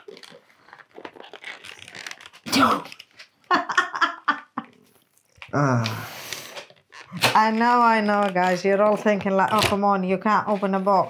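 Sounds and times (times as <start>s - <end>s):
plastic packaging crinkling: 0.0s - 3.9s
short vocal sounds: 5.5s - 6.5s.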